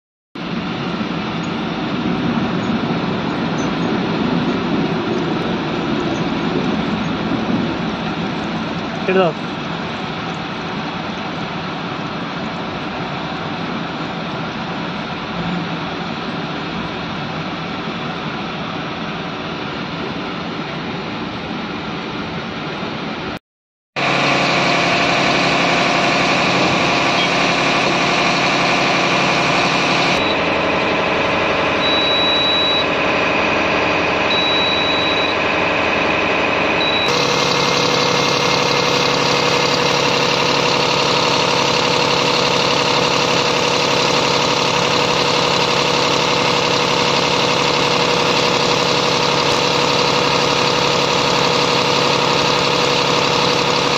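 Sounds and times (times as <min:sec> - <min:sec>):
diesel engine running: 0:00.4 - 0:23.4, 0:24.0 - 0:53.9
short high beeps: 0:30.0 - 0:30.5, 0:31.8 - 0:32.9, 0:34.3 - 0:35.4, 0:36.8 - 0:37.2.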